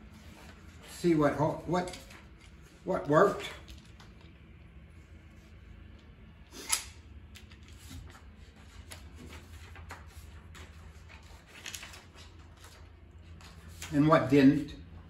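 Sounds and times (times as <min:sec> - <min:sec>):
low steady hum: 0:00.0 - 0:15.0
paper rustling: 0:07.6 - 0:14.3.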